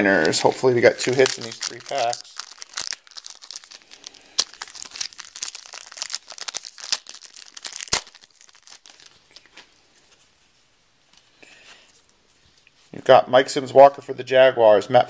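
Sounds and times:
foil pack crinkling: 0.0s - 9.8s.

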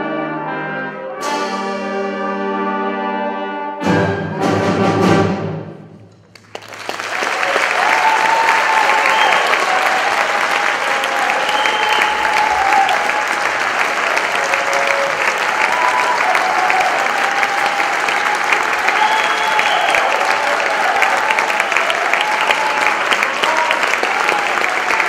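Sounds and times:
audience applause: 6.3s - 25.0s
crowd calls: 6.4s - 25.0s.

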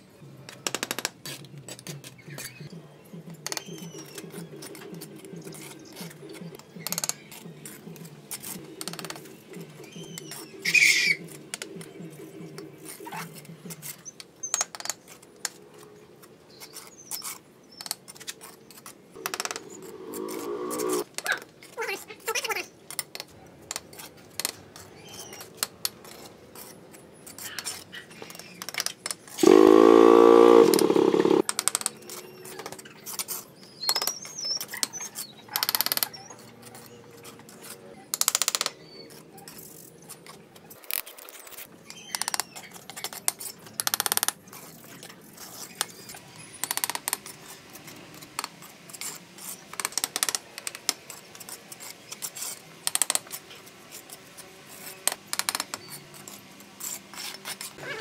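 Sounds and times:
loud pitched sound: 19.2s - 21.0s, 29.4s - 31.4s.

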